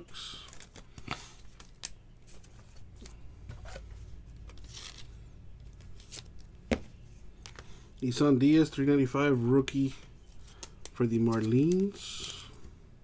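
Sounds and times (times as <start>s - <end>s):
cards sliding and rustling: 0.3s - 7.8s, 9.9s - 12.7s.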